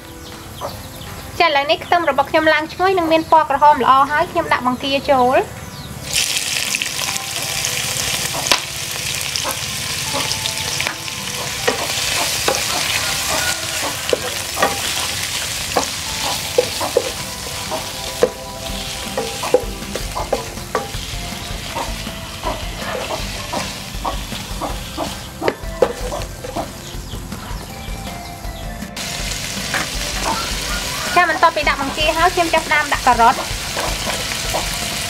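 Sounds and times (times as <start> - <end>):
shrimp sizzling in hot oil: 6.0 - 27.1, 29.0 - 35.0.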